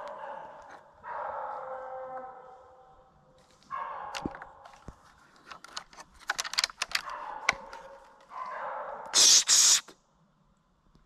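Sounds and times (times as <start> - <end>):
twigs and brush crackling: 3.4 - 8.5.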